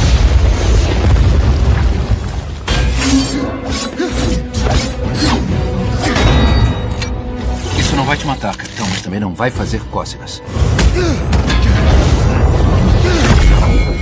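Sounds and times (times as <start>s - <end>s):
explosion booms: 0.0s - 2.6s
action film music: 0.0s - 14.0s.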